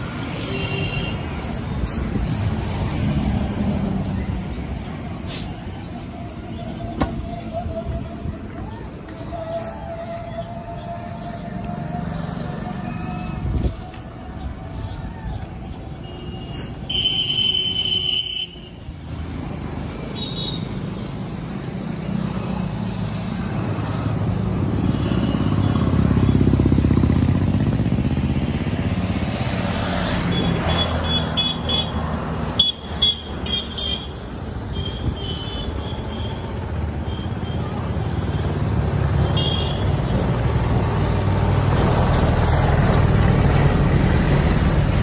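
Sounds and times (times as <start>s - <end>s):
vehicle rumble: 0.0s - 45.0s.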